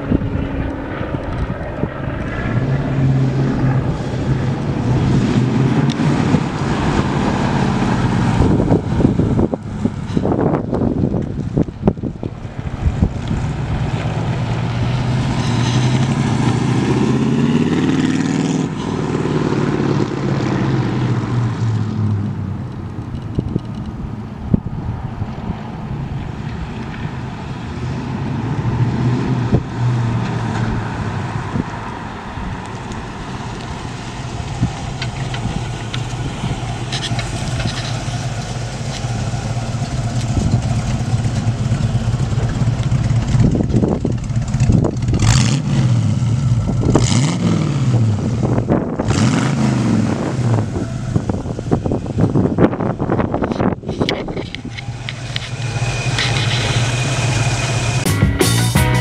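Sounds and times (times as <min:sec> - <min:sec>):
wind buffeting microphone: 0:00.0 - 0:21.6, 0:22.3 - 0:58.1
car engine running: 0:31.4 - 0:47.3, 0:50.1 - 0:59.0.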